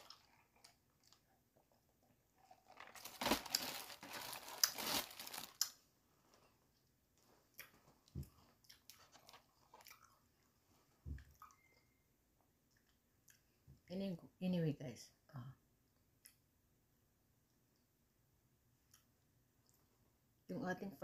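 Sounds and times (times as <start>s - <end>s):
crunching fried chicken: 2.5s - 5.8s.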